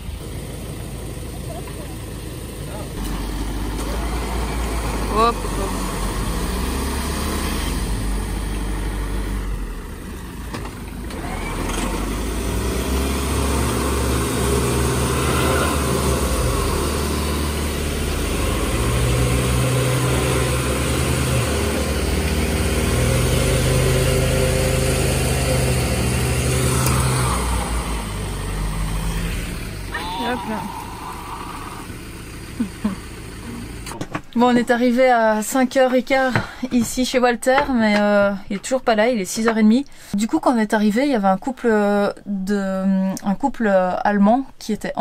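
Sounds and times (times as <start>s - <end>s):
engine revving: 0.0s - 34.0s
vehicle engines running: 0.0s - 40.1s.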